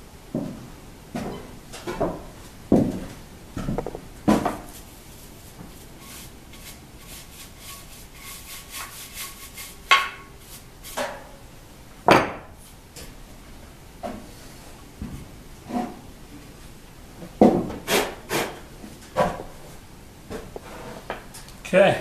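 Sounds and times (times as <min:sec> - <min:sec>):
sharp knocks: 0:03.6 - 0:04.6
knocks and rubbing of metal: 0:03.6 - 0:04.7.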